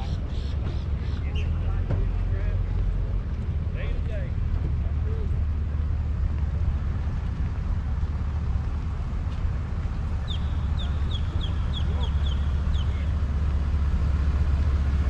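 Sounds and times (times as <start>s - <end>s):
low rumble: 0.0s - 15.0s
bird chirping: 10.2s - 13.2s.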